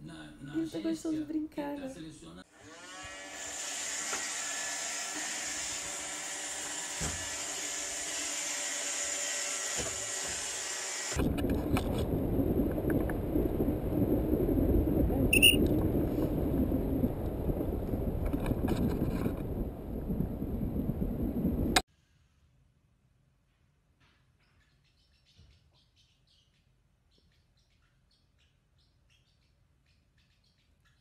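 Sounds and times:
wind rumble on microphone: 11.2s - 21.8s.

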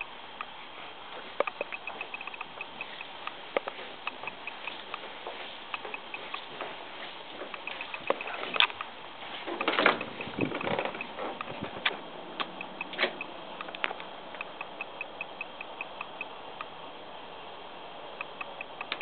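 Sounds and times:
footsteps on wooden deck: 1.1s - 13.2s
faint even ticking: 1.4s - 9.0s, 9.6s - 16.7s
screen door: 3.7s - 14.0s.

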